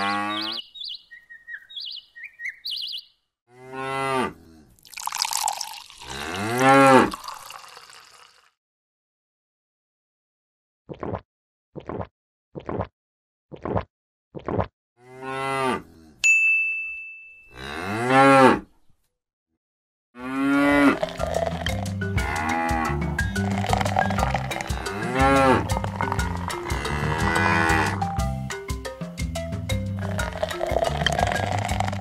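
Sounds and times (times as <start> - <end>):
cow mooing: 0.0 - 0.6, 3.5 - 4.7, 6.0 - 7.2, 15.0 - 16.2, 17.5 - 18.6, 20.2 - 28.0, 30.0 - 32.0
bright ding: 16.3 - 17.5
background music with bass beat: 21.6 - 31.4.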